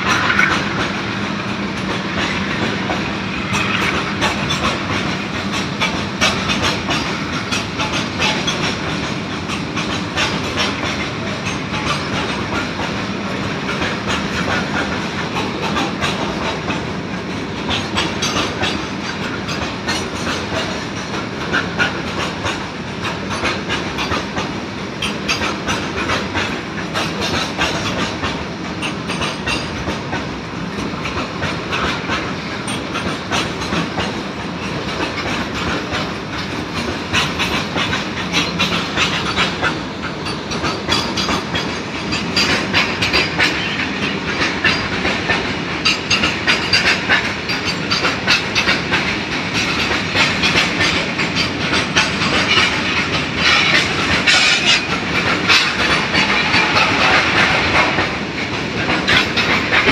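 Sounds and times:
train rumble: 0:00.0 - 0:59.9
train wheels clattering over rail joints: 0:00.0 - 0:59.9.

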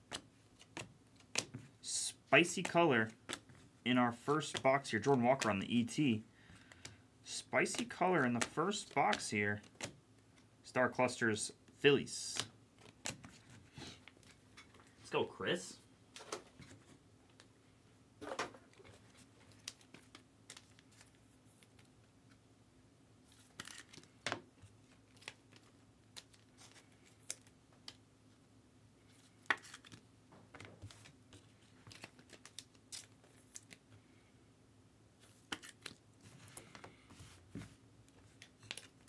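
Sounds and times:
card wrappers rustling and tearing: 0:18.7 - 0:21.9, 0:23.3 - 0:24.2, 0:24.8 - 0:27.5, 0:29.1 - 0:30.0, 0:30.8 - 0:33.8, 0:35.2 - 0:36.8.

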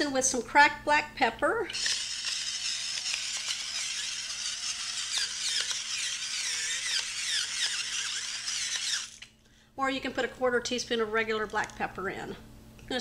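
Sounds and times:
electric pepper mill grinding: 0:01.7 - 0:09.3.

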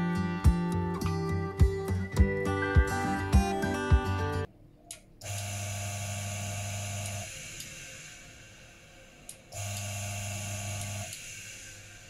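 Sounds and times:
coffee grinder motor running: 0:05.3 - 0:07.5, 0:09.6 - 0:11.2.

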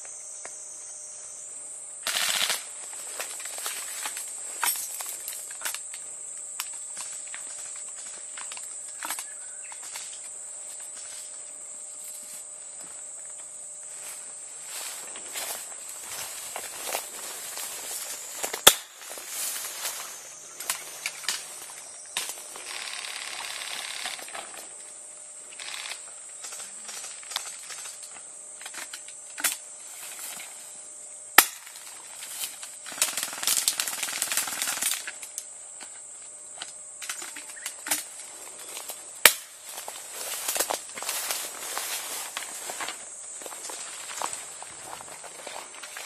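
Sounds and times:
rustling through undergrowth: 0:13.8 - 0:24.6, 0:37.1 - 0:46.0
airsoft gun shots: 0:18.6 - 0:18.9.

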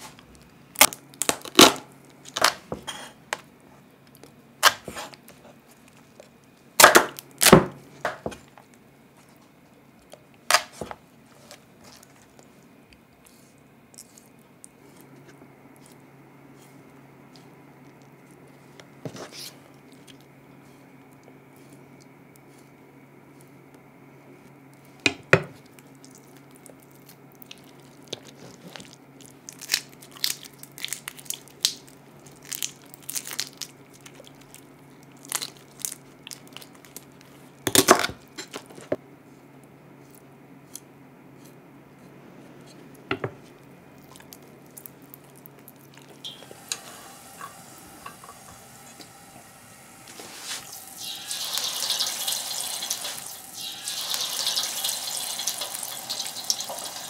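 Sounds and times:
tap running: 0:46.2 - 0:57.0
utensils and dishes clinking: 0:46.3 - 0:49.4.

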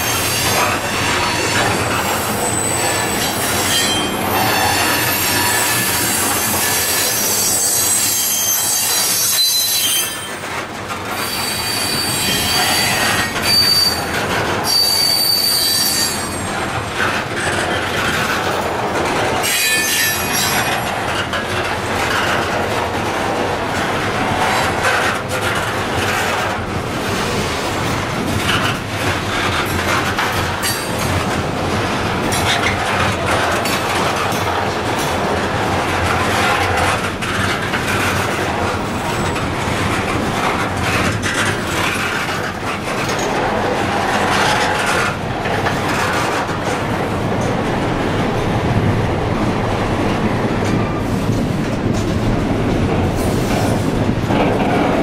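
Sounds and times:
train wheels squealing on rail: 0:00.0 - 0:17.6, 0:19.4 - 0:21.3, 0:29.4 - 0:31.1.

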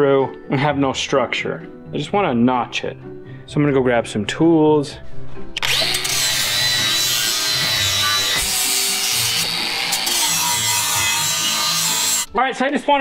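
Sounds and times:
angle grinder grinding steel: 0:05.6 - 0:12.3.

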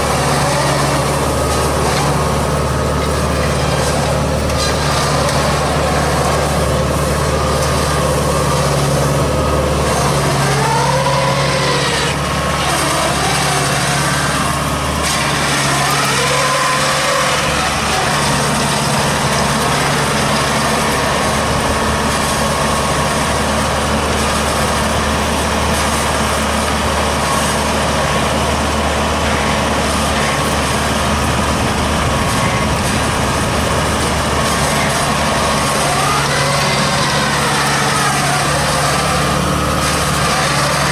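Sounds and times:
machine engine running: 0:00.0 - 0:40.9.

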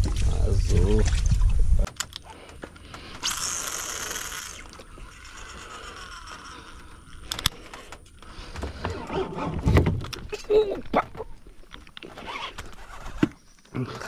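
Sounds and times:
sharp clicks: 0:01.8 - 0:03.6, 0:07.1 - 0:08.2
fishing reel spool whirring: 0:03.2 - 0:08.3.

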